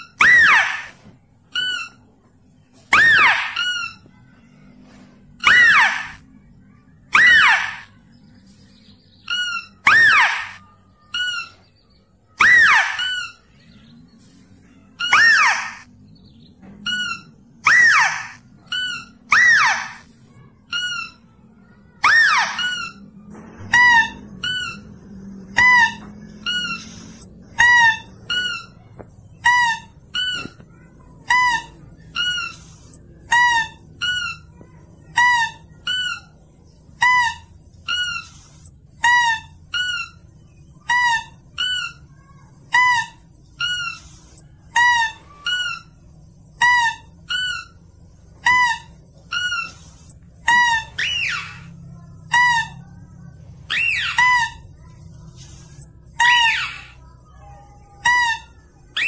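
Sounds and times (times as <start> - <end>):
shrill lure call squeaks: 0.0 - 2.0, 2.9 - 4.0, 5.4 - 6.2, 7.1 - 7.9, 9.3 - 11.6, 12.4 - 13.4, 15.0 - 15.9, 16.9 - 20.0, 22.0 - 23.0, 48.4 - 51.7, 53.7 - 54.6
falling squeals: 0.0 - 2.1, 2.8 - 6.4, 7.1 - 8.0, 9.2 - 13.7, 14.3 - 15.9, 16.8 - 36.4, 37.0 - 55.3, 56.2 - 59.0.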